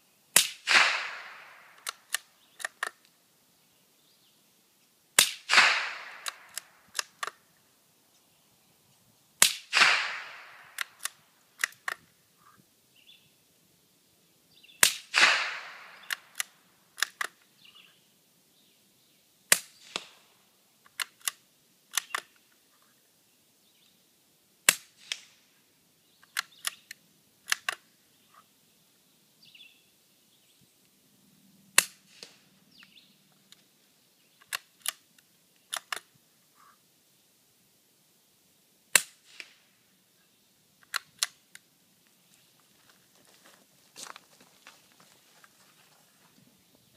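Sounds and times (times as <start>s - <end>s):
suppressed rifle shots: 0.4s - 2.9s, 5.2s - 7.3s, 9.4s - 12.0s, 14.8s - 17.3s, 38.9s - 39.7s
rifle bolt clicking: 1.8s - 3.0s, 5.2s - 7.4s, 10.7s - 12.0s, 20.9s - 22.3s, 27.5s - 27.8s, 35.7s - 36.1s.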